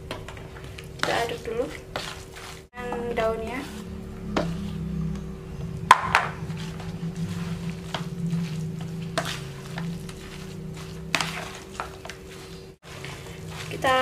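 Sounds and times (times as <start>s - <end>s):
spoon stirring food in bowl: 0.0s - 14.0s
low hum: 2.8s - 13.7s.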